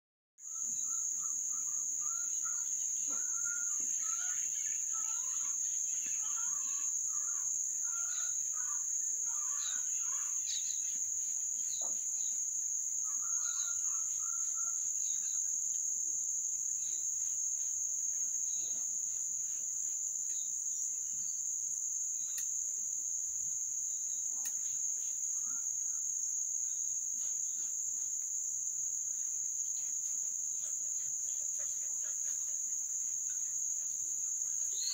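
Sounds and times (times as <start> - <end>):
insects singing high-pitched: 0.4 - 12.4.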